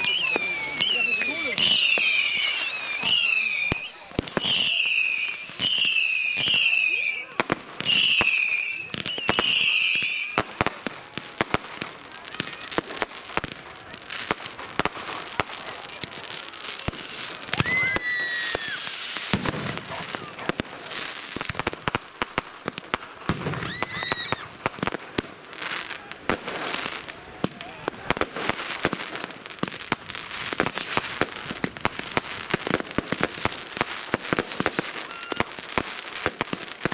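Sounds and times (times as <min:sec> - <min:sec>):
falling firework whistles: 0:00.0 - 0:10.6, 0:16.5 - 0:21.9, 0:23.3 - 0:24.6, 0:30.4 - 0:36.9
firecrackers crackling: 0:00.0 - 0:36.9.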